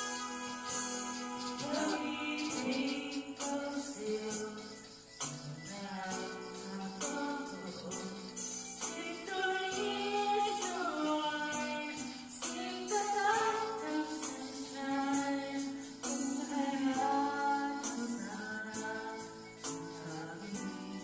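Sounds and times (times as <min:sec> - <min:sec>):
backing track with percussion beat: 0:00.0 - 0:09.8
person singing with vibrato: 0:00.0 - 0:21.0.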